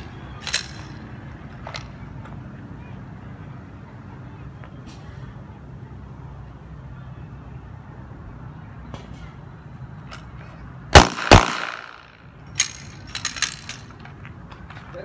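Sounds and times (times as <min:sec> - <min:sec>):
pistol shots echoing: 0:10.9 - 0:12.1.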